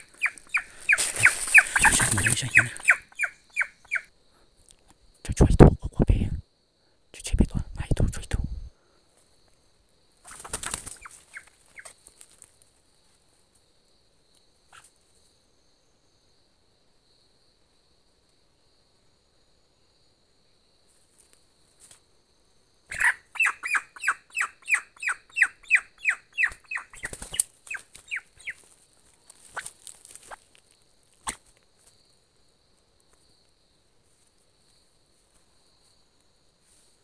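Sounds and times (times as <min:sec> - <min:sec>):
scuffling noises: 0:00.0 - 0:02.9, 0:27.0 - 0:32.0
bird calling: 0:00.0 - 0:04.1, 0:22.9 - 0:28.7
insect buzz: 0:00.0 - 0:37.0.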